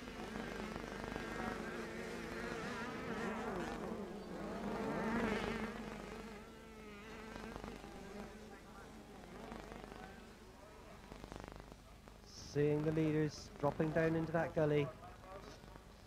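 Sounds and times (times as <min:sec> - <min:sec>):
motocross bike engines revving: 0:00.0 - 0:16.0.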